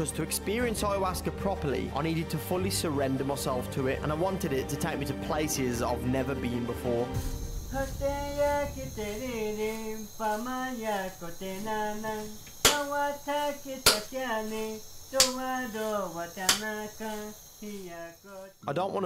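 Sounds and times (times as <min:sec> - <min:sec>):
high insect trill: 0:03.2 - 0:19.0
person singing chant-like melody: 0:07.0 - 0:18.6
sharp strikes: 0:12.6 - 0:13.0, 0:13.8 - 0:14.2, 0:15.2 - 0:15.5.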